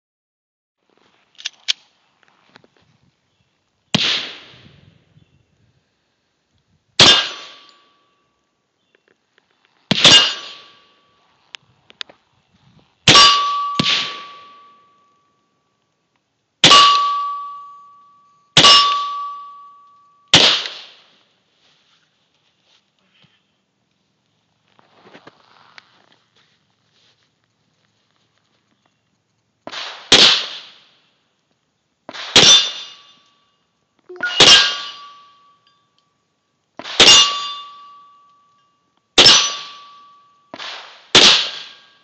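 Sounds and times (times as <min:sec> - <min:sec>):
steel target ringing: 0:07.0 - 0:08.4, 0:09.9 - 0:11.2, 0:13.1 - 0:15.5, 0:16.6 - 0:20.6, 0:32.4 - 0:36.0, 0:37.0 - 0:40.6.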